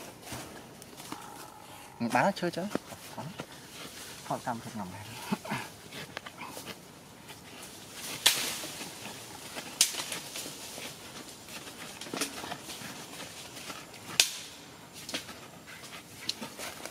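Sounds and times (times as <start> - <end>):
sharp cracks: 9.7 - 10.2, 14.1 - 14.6.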